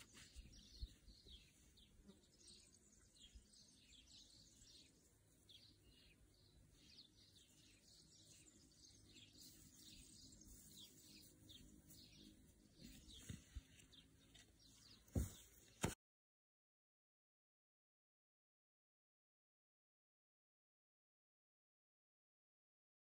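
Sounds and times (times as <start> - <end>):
birds chirping: 0.0 - 16.0.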